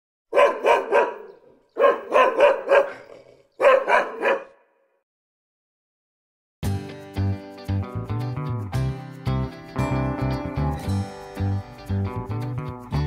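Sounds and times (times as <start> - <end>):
dog barking: 0.3 - 4.9.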